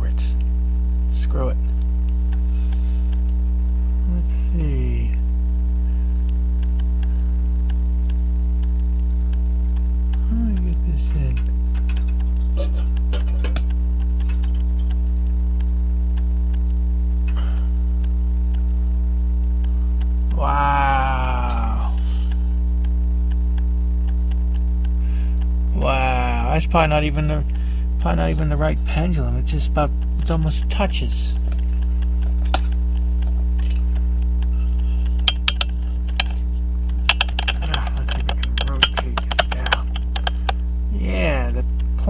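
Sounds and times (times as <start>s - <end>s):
loud mains hum: 0.0s - 42.0s
person grunting: 20.3s - 22.3s
small metallic clicks: 31.4s - 40.6s.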